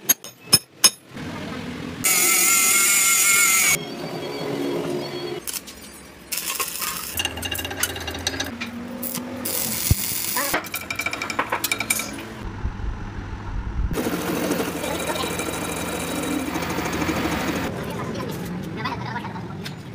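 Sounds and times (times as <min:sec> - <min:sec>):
lathe cutting metal: 0:02.1 - 0:03.8, 0:14.0 - 0:17.7
arc welding crackling: 0:06.3 - 0:07.3, 0:09.0 - 0:10.6.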